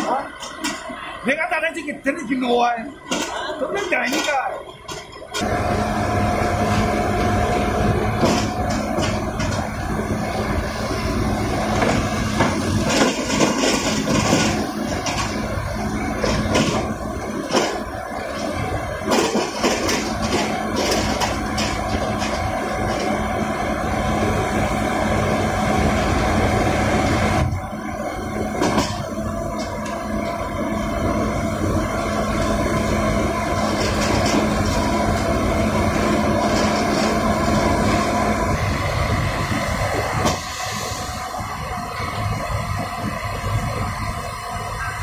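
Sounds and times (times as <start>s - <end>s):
drilling rig engine and hydraulics: 0.0s - 45.0s
knocks and clatter: 8.2s - 9.7s, 11.7s - 15.4s, 16.2s - 23.2s, 28.6s - 30.0s.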